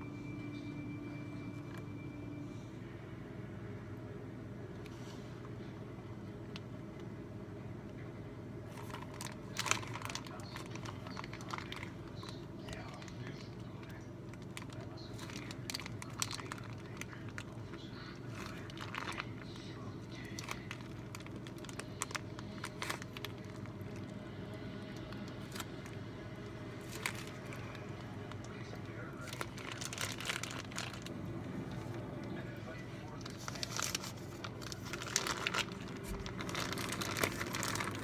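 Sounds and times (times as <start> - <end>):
steady low hum: 0.0 - 38.0
plastic bag crinkling: 8.6 - 38.0.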